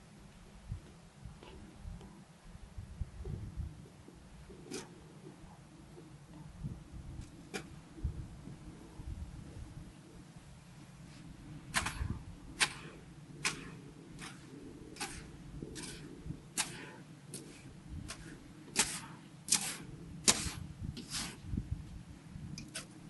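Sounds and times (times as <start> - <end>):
low rumble: 0.0 - 4.6, 5.4 - 16.6.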